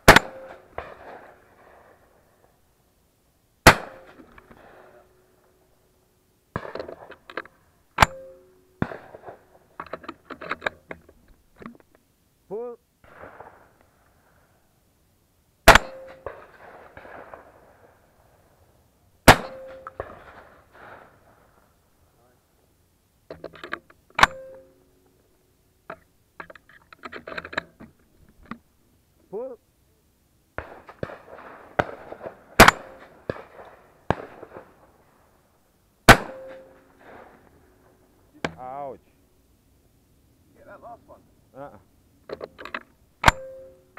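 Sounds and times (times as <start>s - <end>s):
shotgun shots with ringing tone: 0.0s - 1.4s, 3.6s - 4.9s, 8.0s - 9.5s, 15.6s - 17.6s, 19.2s - 21.2s, 24.2s - 24.8s, 30.6s - 34.8s, 36.1s - 37.4s, 43.2s - 43.9s.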